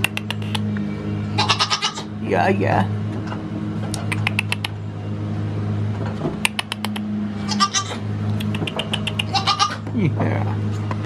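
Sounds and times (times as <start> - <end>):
steady low hum: 0.0 - 11.0
goat bleating: 1.4 - 2.1, 7.5 - 8.0, 8.9 - 9.9.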